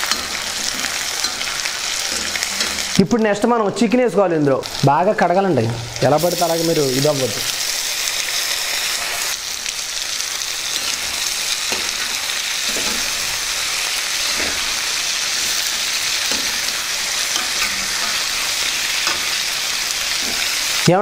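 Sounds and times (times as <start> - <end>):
metal ladle scraping a pan: 0.0 - 3.0, 10.6 - 20.8
chicken sizzling in hot oil: 0.0 - 21.0.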